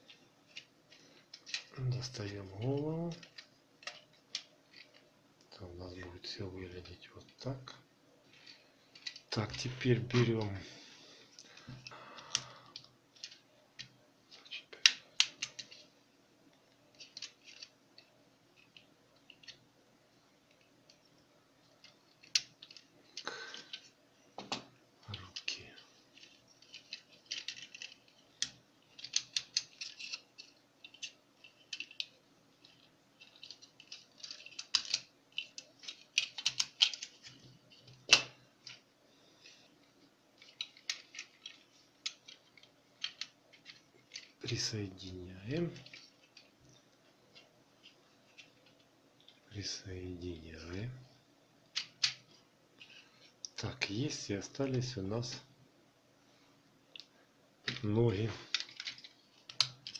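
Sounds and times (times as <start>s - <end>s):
plastic toy parts clicking: 0.5s - 2.2s, 3.1s - 5.0s, 8.4s - 10.3s, 11.6s - 15.8s, 16.9s - 19.6s, 21.7s - 38.8s, 40.4s - 44.5s, 45.6s - 46.5s, 51.7s - 53.6s, 56.9s - 59.9s.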